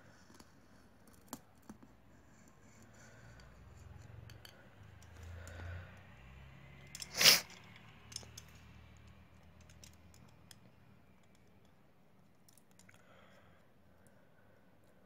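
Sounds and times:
small tools clicking and tapping: 0:00.2 - 0:11.8
short loud hiss: 0:07.0 - 0:07.6.

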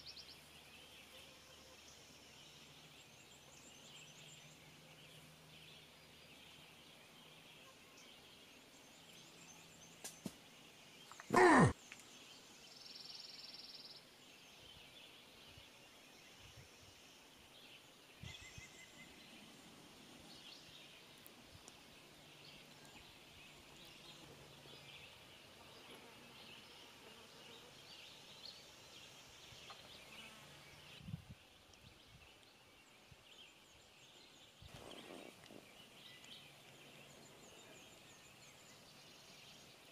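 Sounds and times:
high chorus of calling animals: 0:11.1 - 0:11.8
loud animal call sliding downward: 0:11.2 - 0:11.7.

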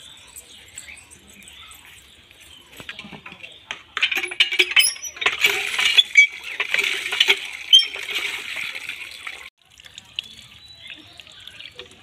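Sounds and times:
water splashing into metal pan: 0:04.1 - 0:12.0.

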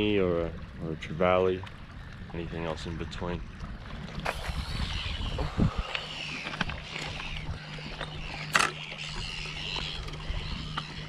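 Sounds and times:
wind buffeting microphone: 0:01.8 - 0:11.0
birds chirping: 0:04.3 - 0:11.0.

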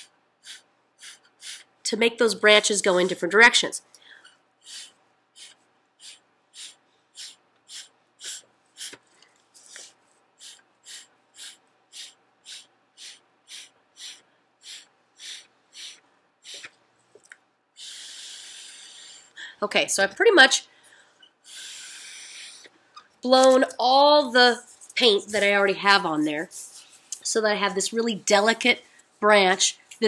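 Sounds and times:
breath puffs through a straw: 0:00.0 - 0:01.7, 0:04.0 - 0:16.8, 0:17.8 - 0:19.6, 0:20.9 - 0:22.8.

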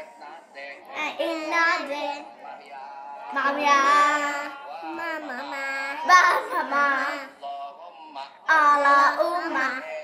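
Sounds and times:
girls chanting in sing-song voice: 0:03.2 - 0:07.3.

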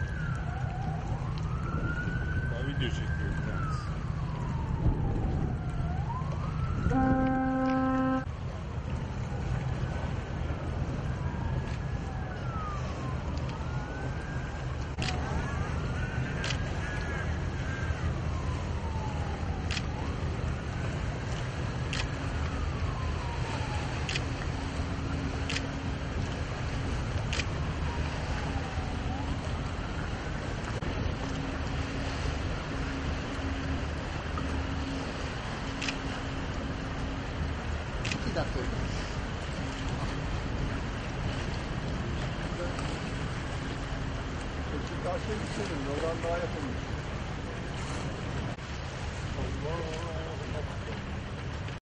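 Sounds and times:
wind buffeting microphone: 0:00.0 - 0:07.5, 0:08.2 - 0:51.8
siren wailing: 0:00.0 - 0:08.3, 0:11.2 - 0:21.2, 0:22.2 - 0:26.2, 0:27.6 - 0:37.5
steady low rumble: 0:17.4 - 0:51.8.

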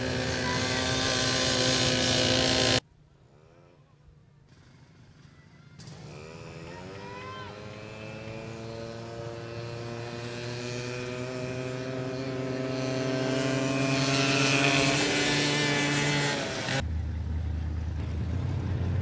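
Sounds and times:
atv engines accelerating: 0:00.0 - 0:19.0
low engine hum: 0:07.7 - 0:19.0.

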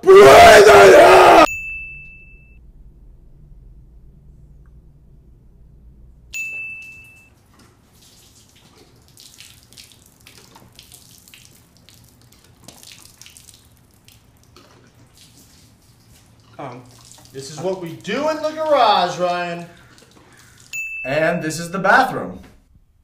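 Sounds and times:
short ding: 0:01.5 - 0:02.6, 0:06.3 - 0:07.3, 0:20.8 - 0:21.7
liquid pouring onto concrete: 0:07.4 - 0:20.8.

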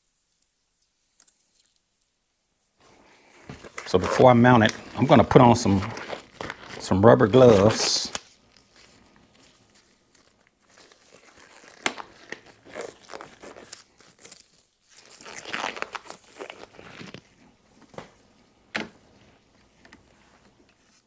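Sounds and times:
rubber gloves crinkling: 0:00.0 - 0:21.0
rubber glove snapping: 0:03.4 - 0:06.9, 0:07.5 - 0:09.3, 0:10.1 - 0:20.8.

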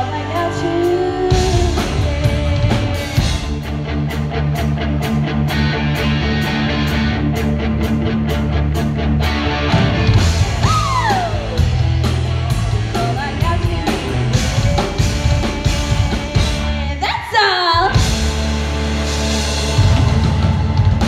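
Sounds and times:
woman singing: 0:00.0 - 0:03.3, 0:12.8 - 0:18.0
live rock band playing: 0:00.0 - 0:17.1, 0:17.8 - 0:21.0.

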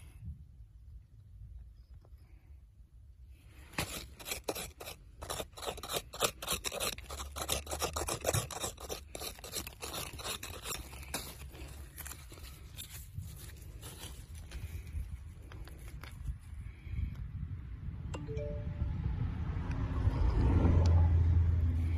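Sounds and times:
digging in dry soil: 0:00.0 - 0:17.4.

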